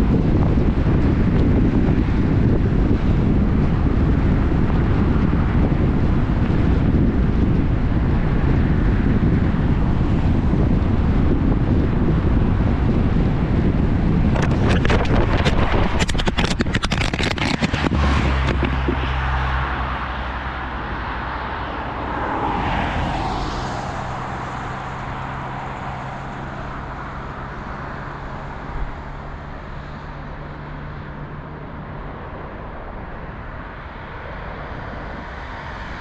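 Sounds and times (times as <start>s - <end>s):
car engine hum: 0.0s - 36.0s
road and tyre rumble: 0.0s - 36.0s
rapid crackle of clicks: 14.4s - 18.7s.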